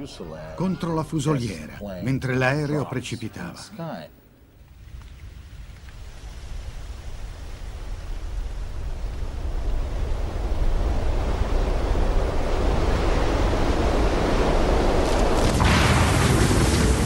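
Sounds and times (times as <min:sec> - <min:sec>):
rushing wind: 0:04.8 - 0:17.0.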